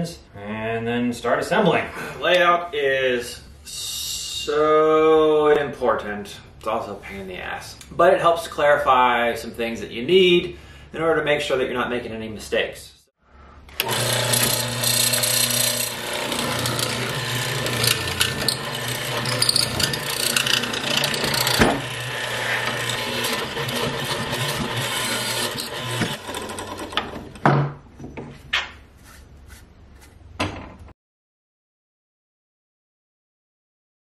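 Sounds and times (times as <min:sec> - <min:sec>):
electric power tool cutting wood: 0:13.7 - 0:27.4.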